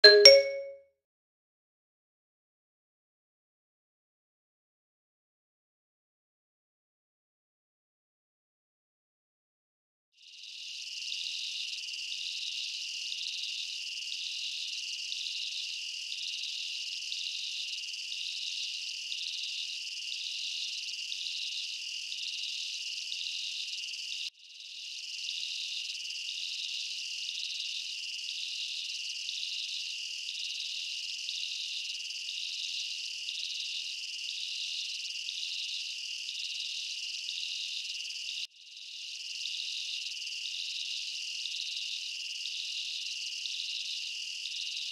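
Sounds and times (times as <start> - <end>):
night insects trilling: 10.2 - 44.9.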